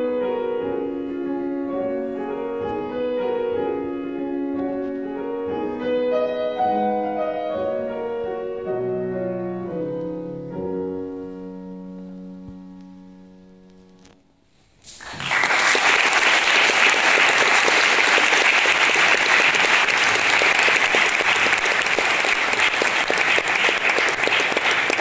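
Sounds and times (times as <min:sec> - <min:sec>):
audience applauding: 0:14.9 - 0:25.0.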